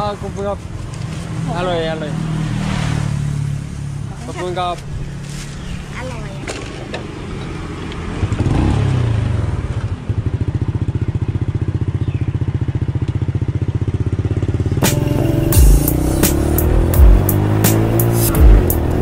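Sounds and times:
music with a beat: 0:14.8 - 0:19.0.

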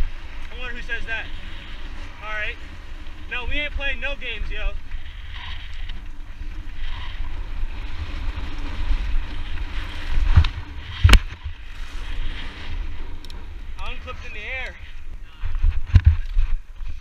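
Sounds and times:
bike tyres rolling on rock: 0:00.0 - 0:17.0
wind buffeting microphone: 0:00.0 - 0:17.0
bike landing impact: 0:04.8 - 0:14.0.

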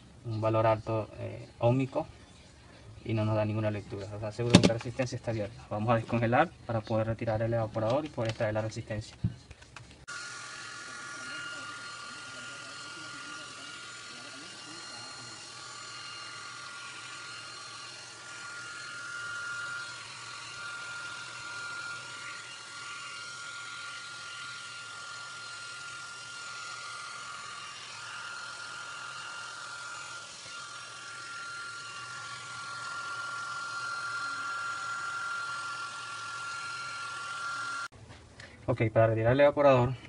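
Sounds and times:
hair dryer whining: 0:10.0 - 0:37.9.

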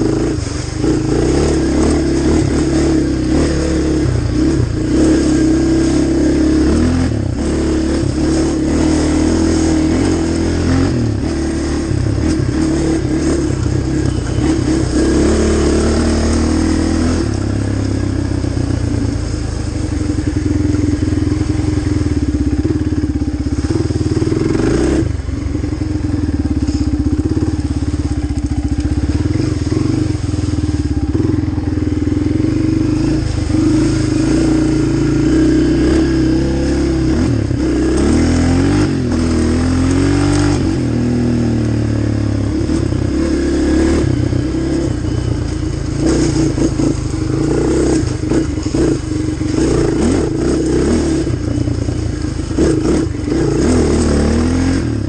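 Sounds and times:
quad engine revving: 0:00.0 - 0:55.0.

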